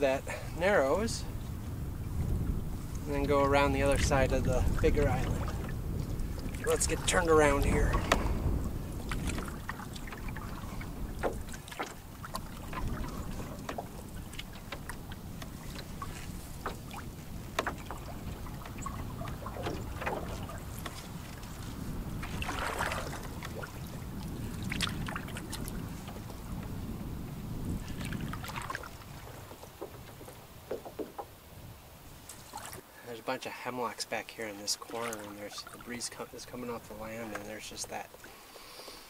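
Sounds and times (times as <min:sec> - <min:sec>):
wind rumble on microphone: 0:00.0 - 0:32.8
paddle swishing through water: 0:00.1 - 0:33.5, 0:34.2 - 0:39.0
water dripping and trickling: 0:03.8 - 0:26.7.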